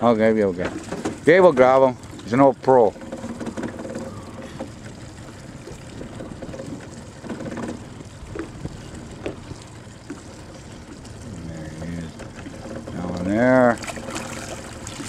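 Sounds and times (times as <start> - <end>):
lake water lapping: 0.0 - 15.0
wind: 0.0 - 15.0
light knocks on boat: 5.6 - 10.3.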